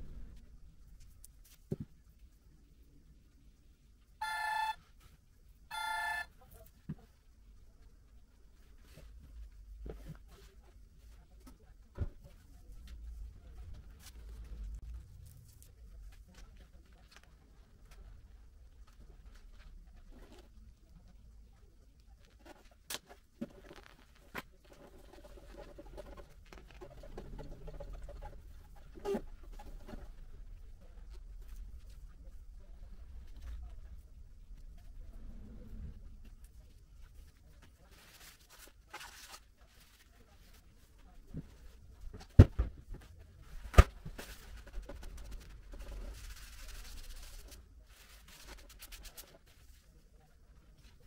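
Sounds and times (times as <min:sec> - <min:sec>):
vinyl rubbing and crinkling: 0:08.1 - 0:51.0
sticker crackling and rustling: 0:22.1 - 0:28.2.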